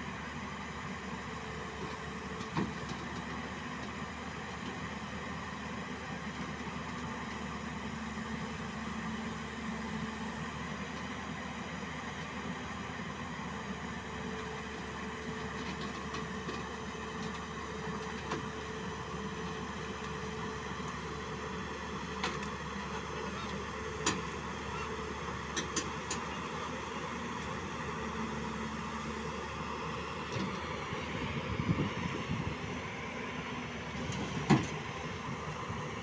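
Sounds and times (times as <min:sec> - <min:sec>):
excavator diesel engine running: 0:00.0 - 0:36.0.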